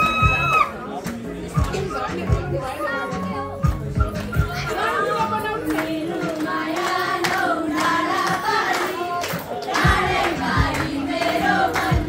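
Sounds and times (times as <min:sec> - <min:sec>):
music with sharp beats: 0:00.0 - 0:02.6, 0:03.6 - 0:12.0
group of voices singing: 0:00.8 - 0:12.0.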